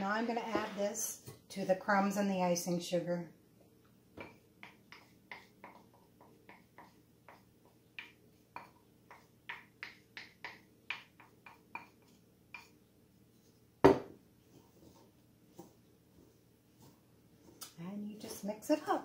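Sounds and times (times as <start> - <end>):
wooden spoon scraping a ceramic bowl: 0.0 - 1.7, 4.2 - 9.3, 14.4 - 18.8
bowl knocking on countertop: 13.8 - 14.2.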